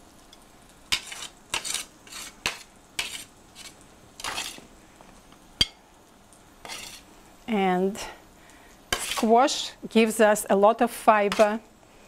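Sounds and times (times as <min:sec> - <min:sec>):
metal spatula scraping a sheet pan: 0:00.9 - 0:04.6, 0:06.6 - 0:07.0, 0:08.9 - 0:09.4, 0:11.3 - 0:11.6.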